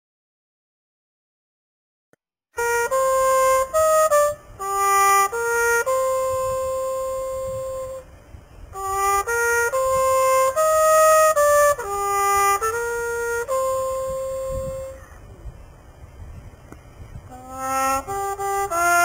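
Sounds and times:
solo trumpet melody: 2.6s - 15.2s, 17.3s - 19.0s.

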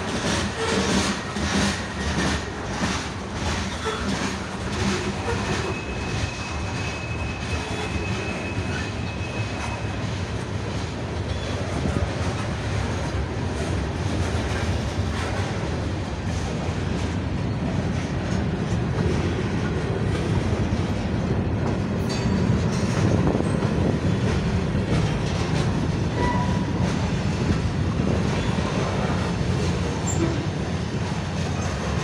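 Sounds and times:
freight cars rumbling: 0.0s - 32.0s
wheels clacking over rail joints: 0.0s - 32.0s
faint high wheel squeal: 5.1s - 10.0s, 30.0s - 30.5s.

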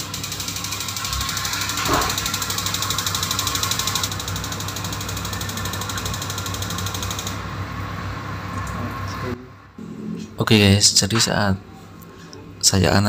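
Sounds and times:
spark igniter ticking: 0.0s - 7.4s
water rushing through heater: 0.0s - 8.8s.

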